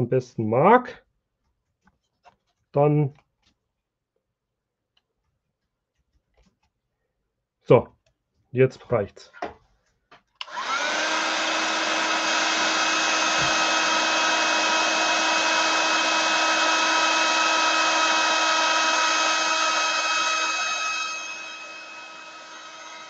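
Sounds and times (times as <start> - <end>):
heat gun blowing hiss: 10.4 - 23.0
heat gun fan whining: 10.4 - 23.0.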